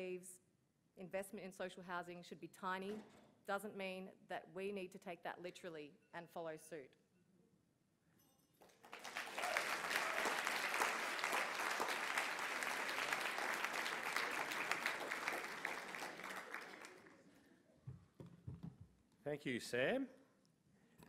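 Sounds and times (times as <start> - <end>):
audience applauding: 8.7 - 17.3.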